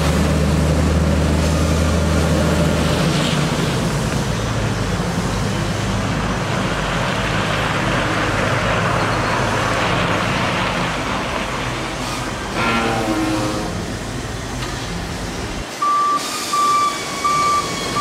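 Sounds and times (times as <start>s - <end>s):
tyres on wet gravel: 0.0s - 15.0s
diesel truck engine rumble: 0.0s - 18.0s
water spray hiss: 13.8s - 18.0s.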